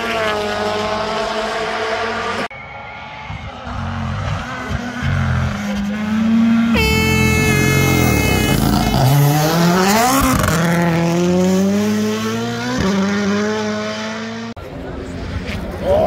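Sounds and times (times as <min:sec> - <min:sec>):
rally car engine revving: 0:03.3 - 0:16.0.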